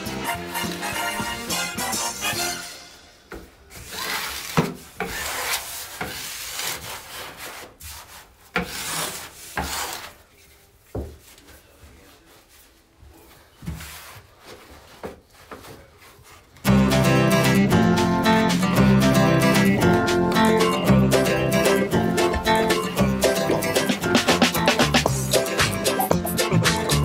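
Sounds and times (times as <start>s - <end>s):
steel trowel scraping membrane: 3.7s - 10.2s.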